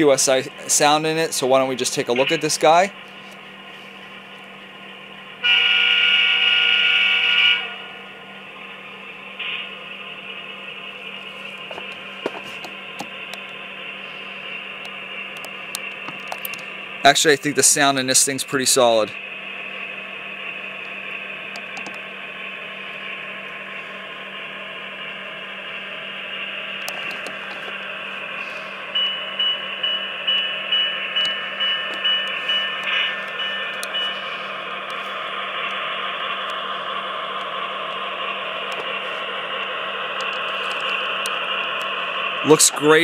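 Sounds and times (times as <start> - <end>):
locomotive bell ringing: 0.0 - 2.9, 5.4 - 8.1, 28.7 - 34.7
model diesel engine sound: 0.0 - 43.0.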